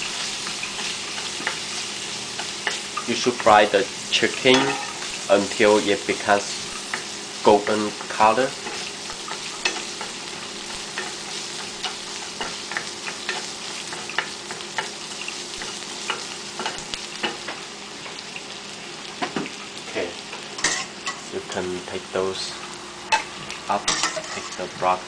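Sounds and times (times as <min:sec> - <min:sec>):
oil sizzling in frying pan: 0:00.0 - 0:25.0
spatula scraping metal pan: 0:23.9 - 0:24.7.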